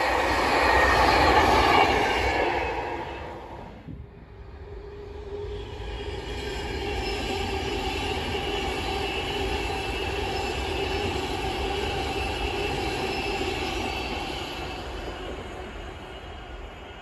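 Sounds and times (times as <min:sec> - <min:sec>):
steady whine: 0:00.0 - 0:16.9
electric train passing: 0:00.0 - 0:17.0.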